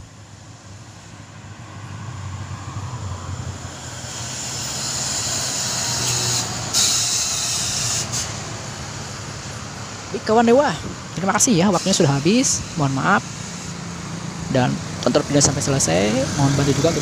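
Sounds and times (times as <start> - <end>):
bus diesel engine rumble: 0.0 - 17.0
air brake hiss: 4.0 - 8.4.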